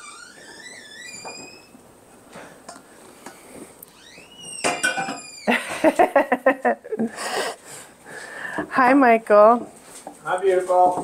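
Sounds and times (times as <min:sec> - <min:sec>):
faint rising squeak: 0:00.0 - 0:01.8, 0:03.9 - 0:05.6.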